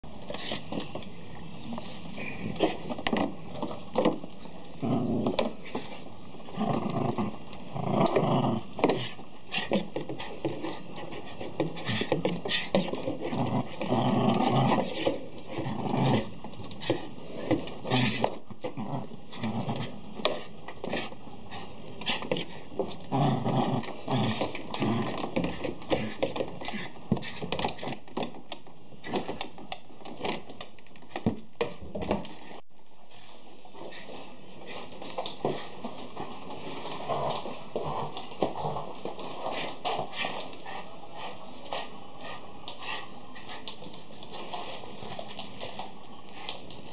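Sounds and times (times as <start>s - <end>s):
small dog growling: 4.8s - 5.8s, 6.5s - 9.8s, 13.1s - 16.5s, 22.9s - 26.8s.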